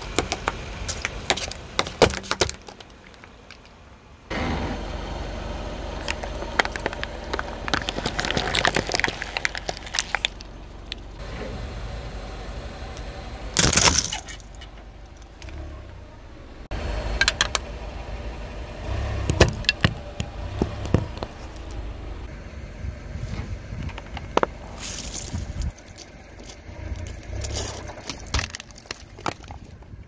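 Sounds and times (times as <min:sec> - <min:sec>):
car engine idling: 0:00.0 - 0:30.0
plastic toys cracking and crunching: 0:06.0 - 0:11.0, 0:13.6 - 0:14.6, 0:23.9 - 0:30.0.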